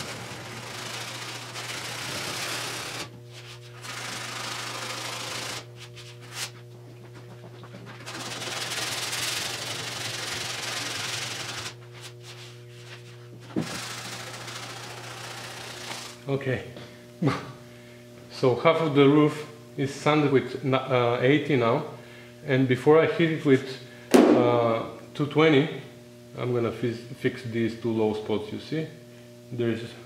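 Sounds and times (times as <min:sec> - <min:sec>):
sandpaper scratching on car body: 0:00.0 - 0:06.5, 0:08.0 - 0:16.2.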